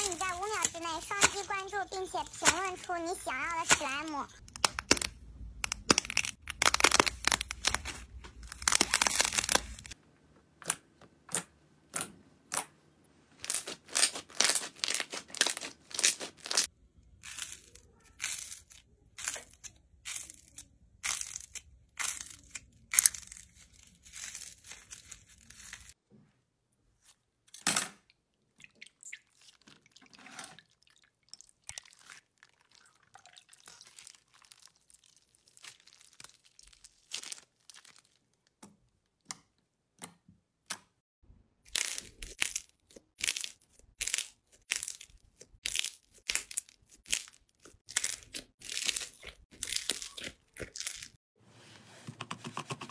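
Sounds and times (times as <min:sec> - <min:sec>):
slime crackling and popping: 0:00.0 - 0:10.0, 0:13.5 - 0:26.0, 0:33.6 - 0:38.6, 0:41.7 - 0:51.2.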